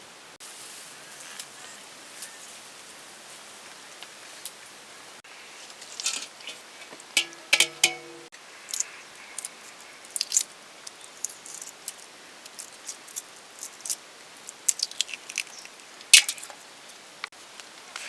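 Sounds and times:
eggshell cracking and crunching: 10.1 - 10.5, 12.5 - 16.5.

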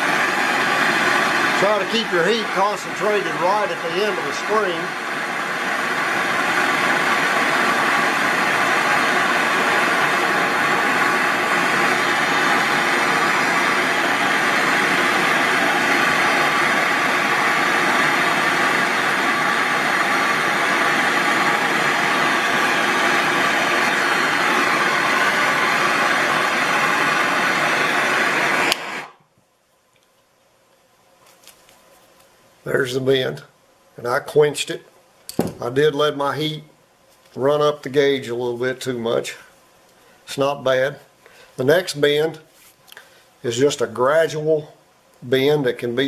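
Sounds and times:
propane torch hissing: 0.0 - 29.2.

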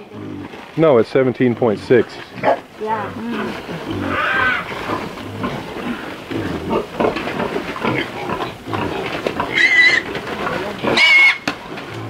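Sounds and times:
pig noises: 0.0 - 12.0
piglet squealing: 4.0 - 4.7, 9.5 - 10.1, 10.9 - 11.4.

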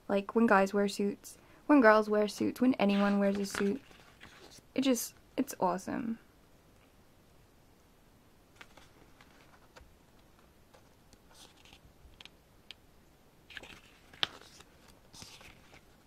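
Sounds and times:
paper pages rustling: 2.2 - 4.6, 8.5 - 12.4, 13.5 - 16.0.

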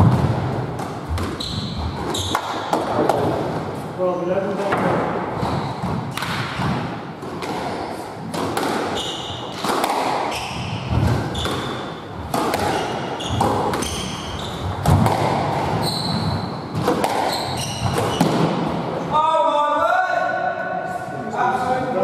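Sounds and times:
shoe squeaks on wooden floor: 1.2 - 2.5, 8.9 - 9.6, 10.3 - 12.0, 12.7 - 14.9, 15.6 - 18.4
squash ball cracking off rackets: 4.6 - 15.8, 16.7 - 18.8.

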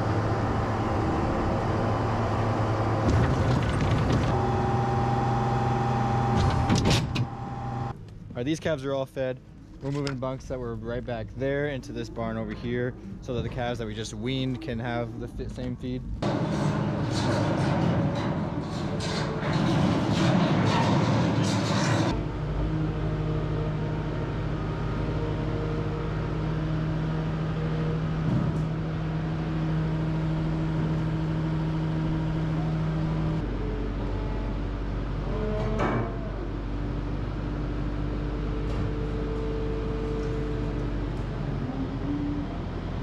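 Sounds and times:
loader engine idling: 0.0 - 8.0.

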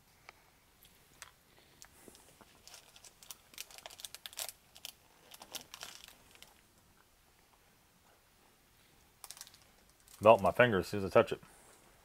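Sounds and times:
foil wrapper crinkling: 2.4 - 6.6, 9.2 - 10.6.

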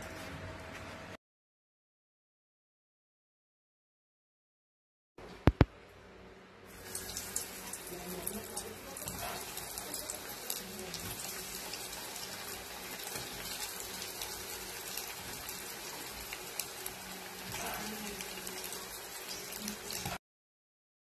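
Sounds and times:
food deep-frying in oil: 6.7 - 20.2.

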